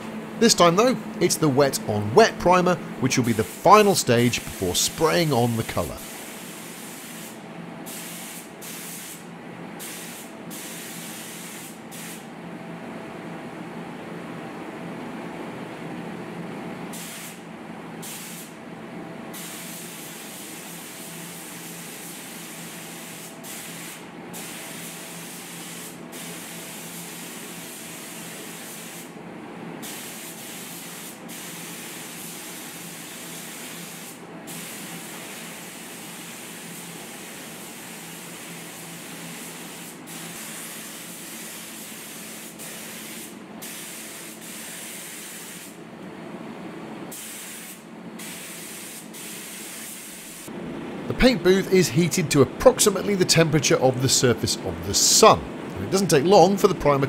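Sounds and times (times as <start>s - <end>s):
steady background hum: 0.0s - 57.0s
spray gun hissing bursts: 2.4s - 12.2s, 16.9s - 17.4s, 18.0s - 18.6s, 19.3s - 29.1s, 29.8s - 45.8s, 47.1s - 50.5s.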